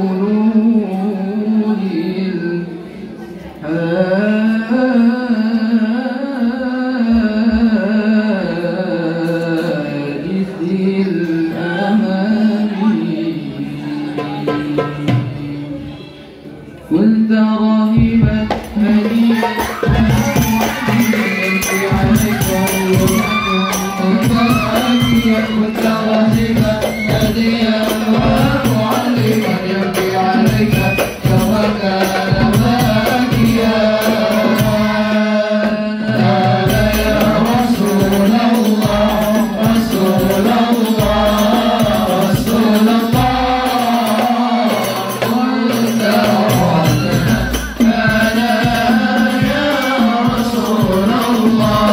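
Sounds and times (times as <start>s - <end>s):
man singing devotional song: 0.0s - 16.1s, 16.8s - 51.9s
frame drums and hand drums: 14.1s - 15.7s, 18.0s - 51.9s.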